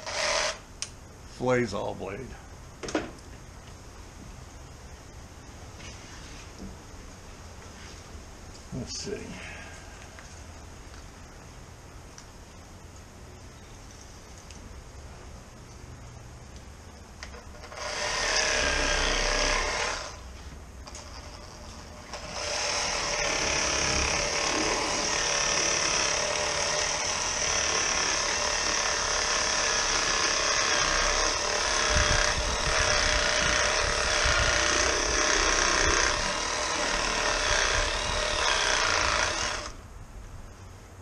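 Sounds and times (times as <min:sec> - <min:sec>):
electric fillet knife sawing fish: 0:17.6 - 0:20.2, 0:22.1 - 0:39.8.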